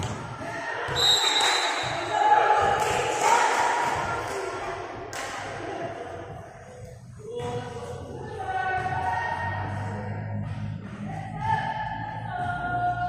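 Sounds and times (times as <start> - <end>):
noisy voices in a hall: 0.0 - 13.0
music with singing: 4.8 - 13.0.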